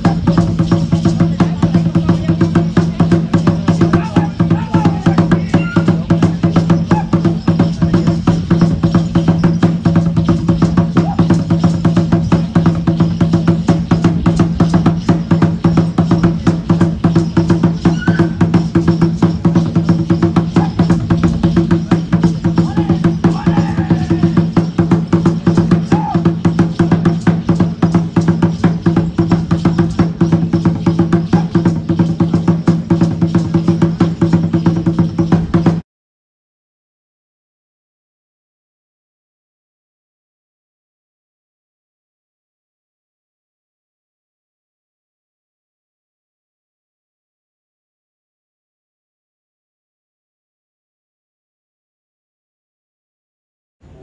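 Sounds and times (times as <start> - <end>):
fast wooden drum beats: 0.0 - 35.8.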